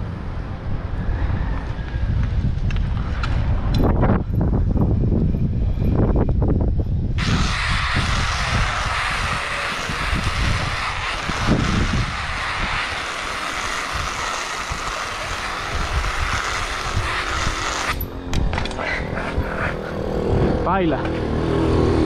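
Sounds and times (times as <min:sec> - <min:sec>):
wind rumble on microphone: 0:00.0 - 0:22.0
glove scraping on asphalt: 0:07.2 - 0:18.0.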